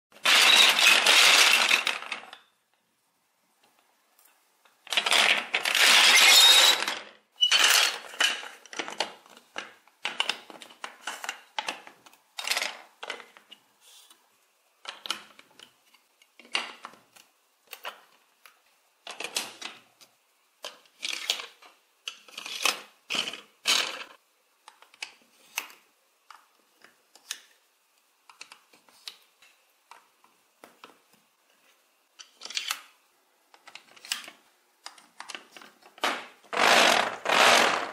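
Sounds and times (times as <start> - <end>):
plastic bricks rattling: 0.2 - 2.4, 4.8 - 13.4
plastic bricks clicking together: 0.2 - 2.5, 4.7 - 13.6.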